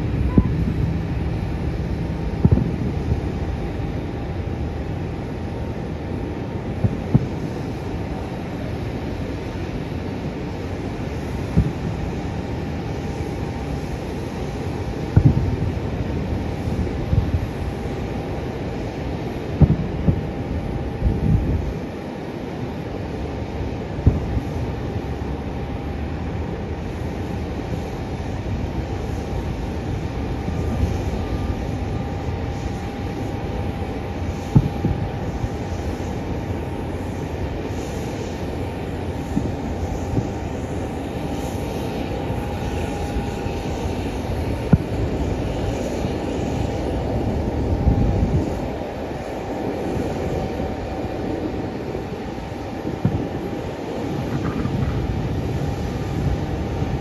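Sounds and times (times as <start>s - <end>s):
faint steady whine: 0.0s - 57.0s
low rumble of airport ramp: 0.0s - 57.0s
distant fireworks bangs: 0.3s - 3.6s, 6.8s - 7.6s, 11.5s - 12.1s, 15.2s - 15.8s, 19.6s - 20.4s, 24.0s - 24.4s, 34.4s - 36.0s, 53.0s - 53.5s.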